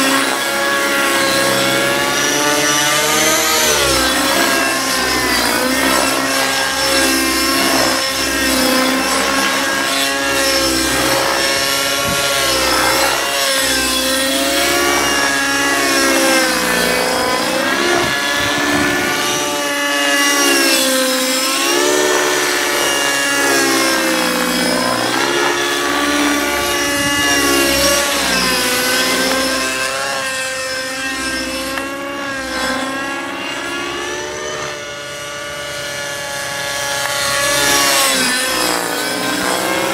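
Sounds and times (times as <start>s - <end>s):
model helicopter engine whining: 0.0s - 39.9s.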